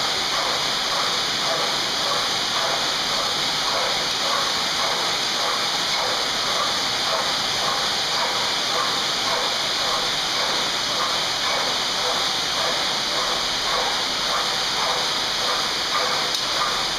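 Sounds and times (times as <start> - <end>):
flywheel spinning with rushing noise: 0.0 - 16.9.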